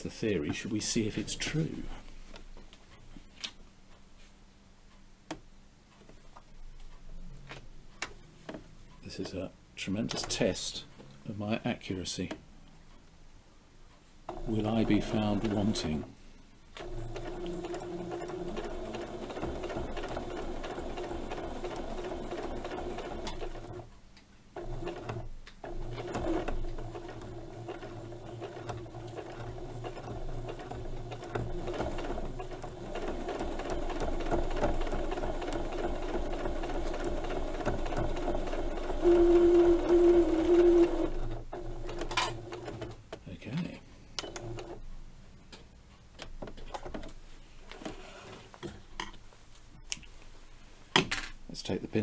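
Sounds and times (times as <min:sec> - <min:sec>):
sewing machine stitching: 0:14.3 - 0:16.1, 0:16.8 - 0:23.9, 0:24.6 - 0:43.0, 0:44.2 - 0:44.8.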